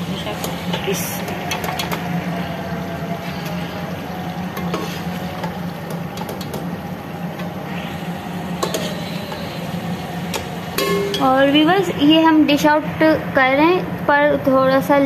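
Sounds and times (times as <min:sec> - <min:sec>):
steady low hum: 0:00.0 - 0:15.0
metal ladle scraping pot: 0:04.5 - 0:05.6, 0:08.5 - 0:09.6.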